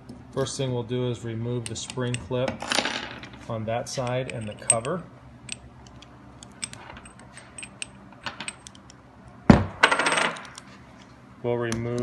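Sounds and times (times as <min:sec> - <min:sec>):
metal parts rattling: 0:02.6 - 0:05.0, 0:06.4 - 0:08.8.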